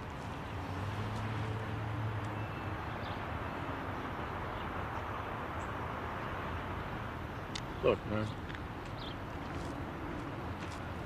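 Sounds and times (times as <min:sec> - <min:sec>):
distant traffic: 0:00.0 - 0:11.0.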